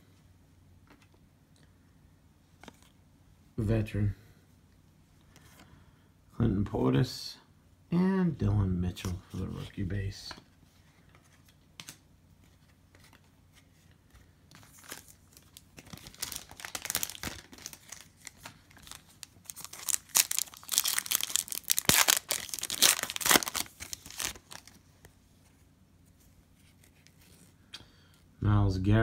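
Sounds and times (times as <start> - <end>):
foil wrapper crinkling and tearing: 14.7 - 24.8.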